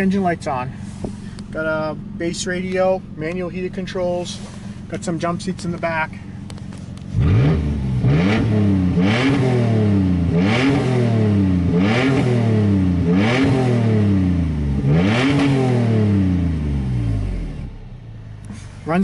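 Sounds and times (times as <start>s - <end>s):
engine revving: 7.0s - 17.8s.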